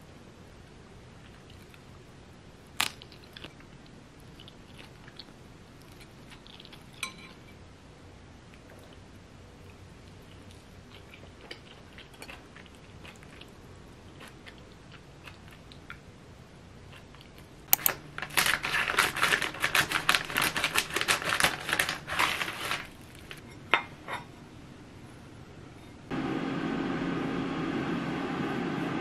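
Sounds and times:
plastic crinkling: 17.8 - 23.4
scissors cutting plastic bag: 17.8 - 23.4.

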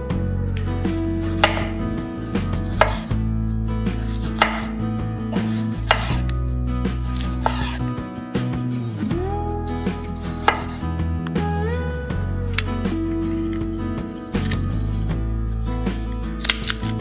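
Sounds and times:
knife slicing tomato: 1.1 - 1.8, 2.4 - 3.2, 3.9 - 8.0, 9.8 - 10.8
knife tapping on cutting board: 1.5 - 1.7.

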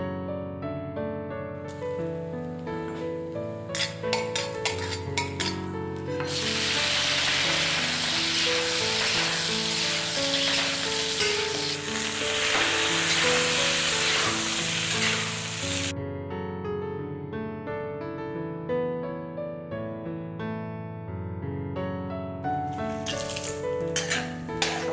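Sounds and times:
food sizzling in hot oil: 1.7 - 15.9, 22.7 - 24.9
spatula scraping a wok: 2.9 - 15.9, 22.7 - 24.9.

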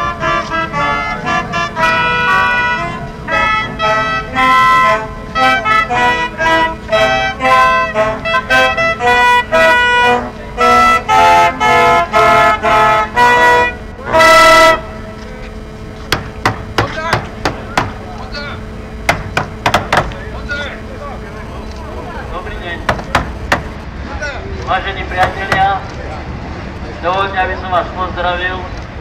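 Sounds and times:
brass instrument playing tune: 0.0 - 24.0.

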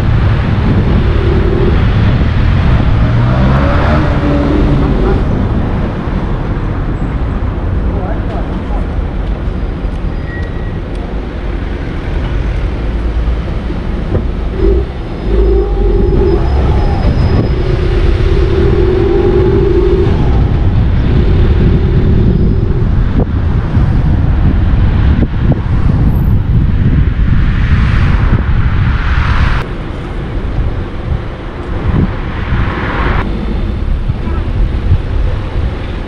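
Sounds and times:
car engine and road noise: 0.0 - 36.0
steady hum: 14.3 - 23.5.

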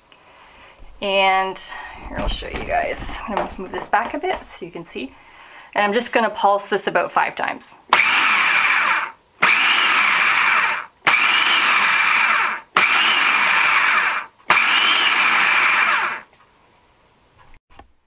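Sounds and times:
food processor motor pulsing: 7.9 - 16.3.

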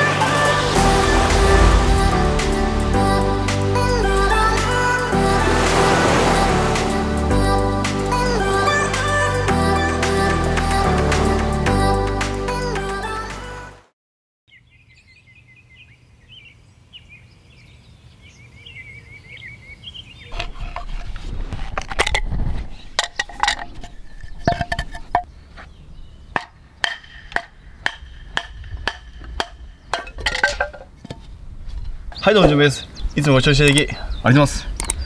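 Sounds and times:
wooden baton striking knife: 26.4 - 30.8.

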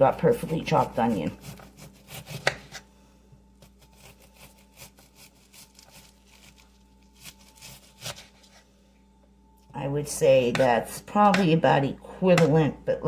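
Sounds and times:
knife slicing onion: 0.0 - 2.9, 3.6 - 6.6, 7.2 - 8.6.

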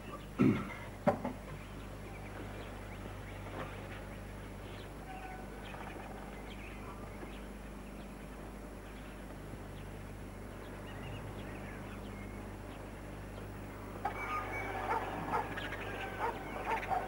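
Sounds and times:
steady low hum: 0.0 - 17.0
poultry calling: 5.0 - 7.0, 13.9 - 17.0.

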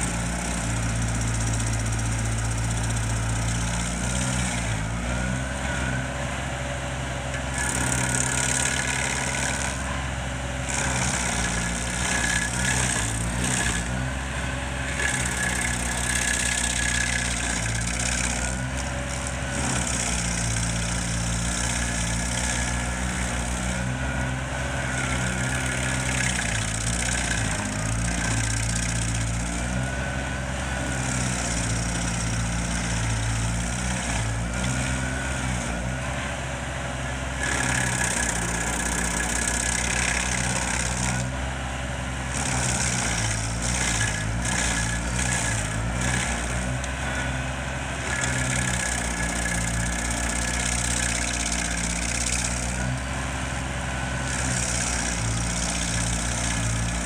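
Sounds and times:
stump grinder engine droning: 0.0 - 57.0.

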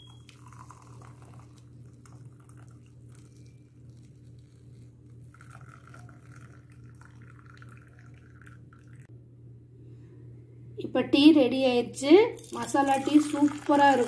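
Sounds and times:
steady low hum: 0.0 - 14.0
liquid trickling and splashing: 0.1 - 9.1, 12.4 - 14.0.

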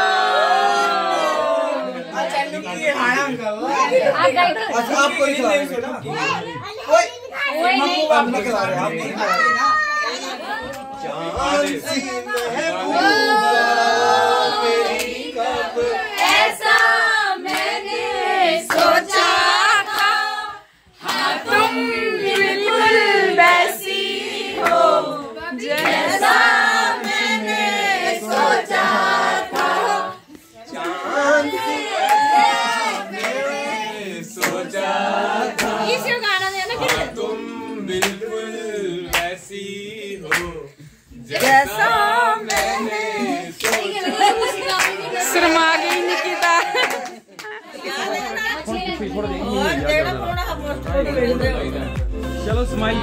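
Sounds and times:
group of voices singing: 0.0 - 2.8, 10.2 - 53.0
hand claps: 34.4 - 34.6, 38.0 - 38.2, 39.1 - 39.4, 40.2 - 40.6
sharp claps: 38.0 - 38.2, 40.2 - 40.6.

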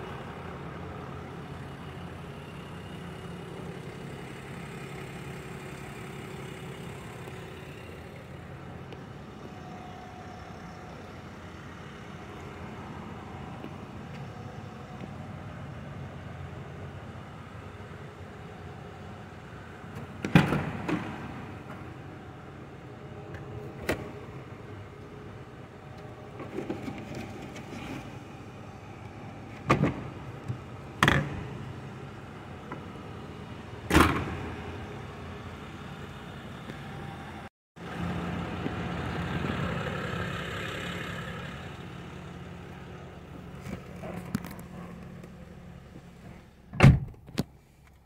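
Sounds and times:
car trunk and doors thumping: 46.7 - 47.4
car door shutting: 46.7 - 47.5.

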